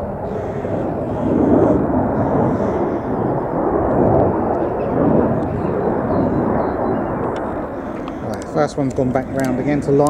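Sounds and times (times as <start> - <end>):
fighter jet roar: 0.0 - 10.0.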